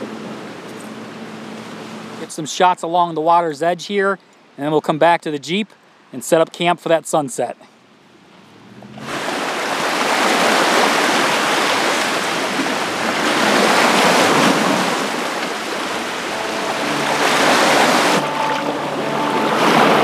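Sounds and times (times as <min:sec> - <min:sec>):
waves washing onto shore: 0:08.9 - 0:20.0.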